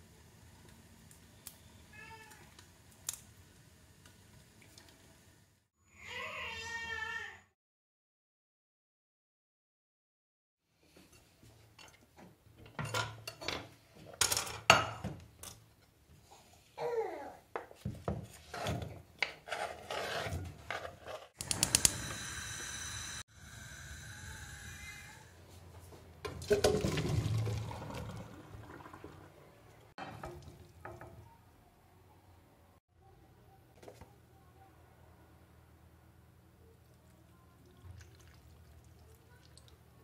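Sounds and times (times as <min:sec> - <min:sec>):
water pouring into colander: 0:26.4 - 0:30.9, 0:37.6 - 0:39.8.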